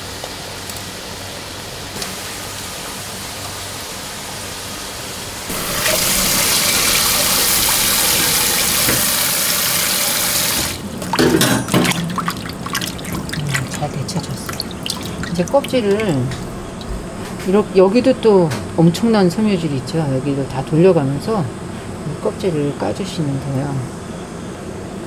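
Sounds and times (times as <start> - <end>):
water boiling in a pan: 0.0 - 17.9
tap running into steel bowl: 8.8 - 9.2
hands splashing in water: 10.8 - 16.9.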